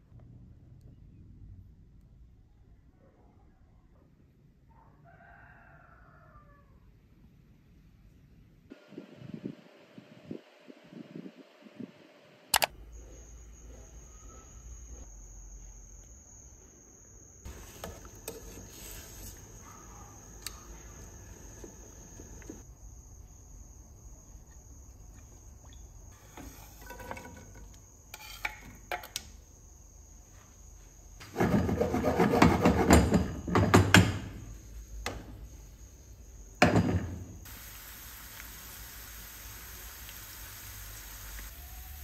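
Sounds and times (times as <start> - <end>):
garlic sizzling in oil: 37.4 - 42.0
pot of water boiling: 37.4 - 42.0.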